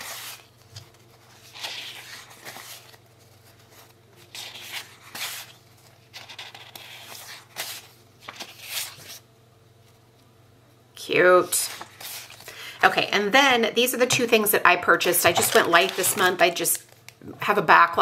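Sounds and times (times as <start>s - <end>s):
sticker sheets rustling: 0.0s - 9.2s, 15.0s - 16.9s.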